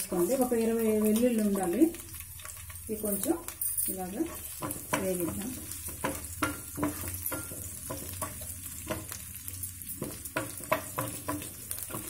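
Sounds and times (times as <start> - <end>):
garlic sizzling in oil: 0.0 - 12.0
spatula scraping and tapping pan: 2.1 - 12.0.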